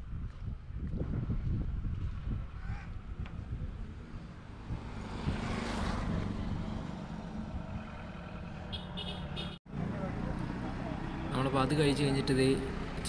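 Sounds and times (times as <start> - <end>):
vehicle passing: 3.5 - 13.0.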